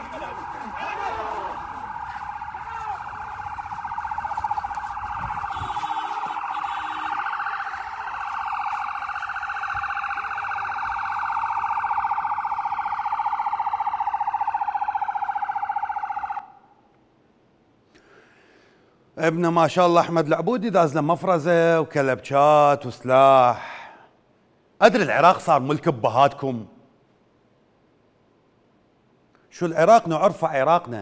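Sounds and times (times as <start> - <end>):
police siren warbling: 0.0 - 16.7.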